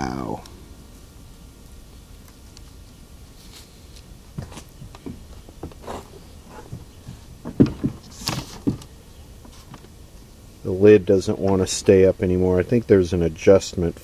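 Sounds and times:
papers and items moved about: 0:02.7 - 0:10.0
light taps and knocks: 0:04.4 - 0:09.9.

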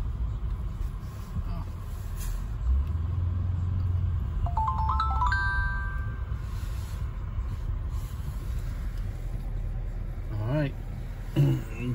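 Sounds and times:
car rumbling inside cabin: 0:00.0 - 0:11.9.

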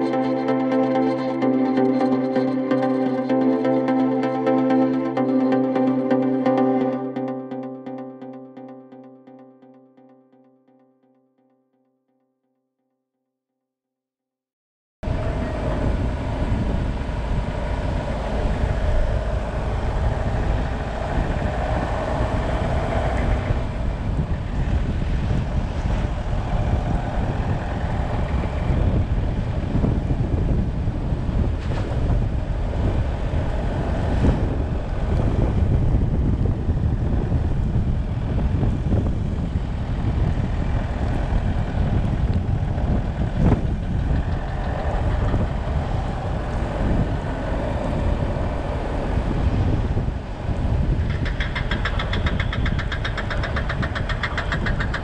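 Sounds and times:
wind buffeting microphone: 0:15.0 - 0:55.0
motorcycle engine: 0:15.1 - 0:30.2.

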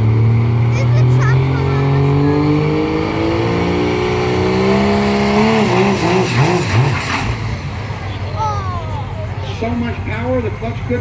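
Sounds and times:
diesel engine under load: 0:00.0 - 0:11.0.

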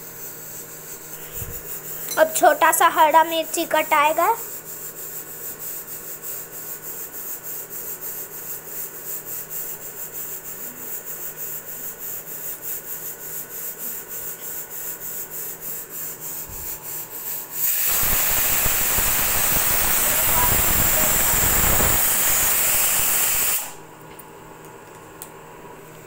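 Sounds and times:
pressure cooker hissing: 0:00.0 - 0:23.8
pressure cooker whistling: 0:17.6 - 0:23.8.

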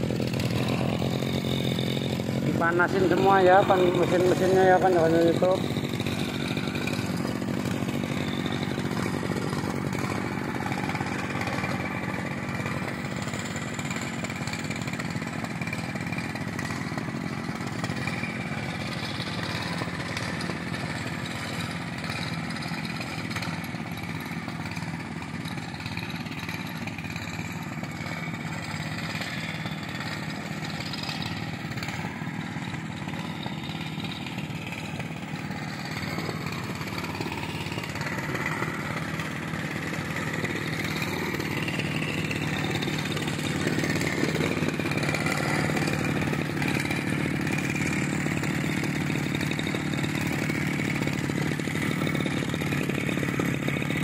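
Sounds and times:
small engines idling: 0:00.0 - 0:54.0.

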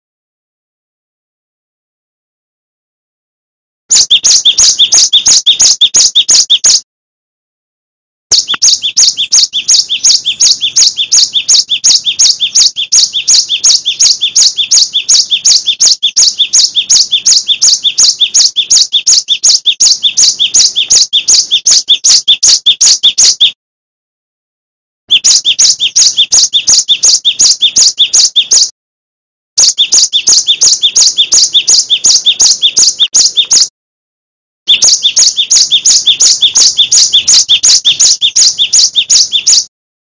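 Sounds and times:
bird singing high notes: 0:03.9 - 0:06.8, 0:08.3 - 0:23.6, 0:25.1 - 0:28.7, 0:29.6 - 0:33.7, 0:34.7 - 0:39.7.

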